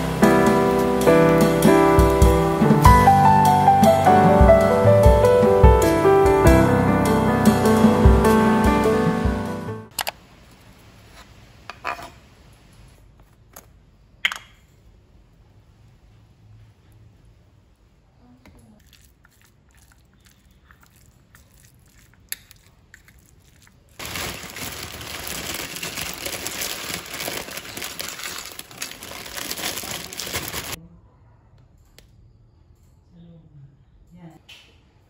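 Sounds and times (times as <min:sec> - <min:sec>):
plastic bag crinkling: 0:18.8 - 0:30.8.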